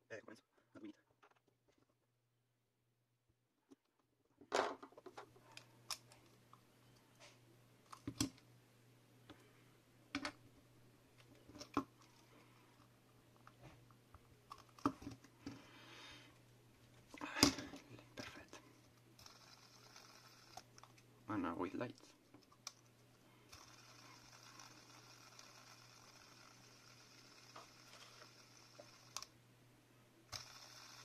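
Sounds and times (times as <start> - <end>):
faint low hum: 0.0 - 31.0.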